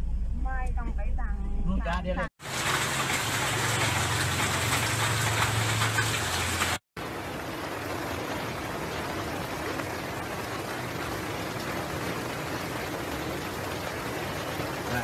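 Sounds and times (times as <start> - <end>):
low hum: 0.0 - 2.3
heavy rain hissing: 2.4 - 15.0.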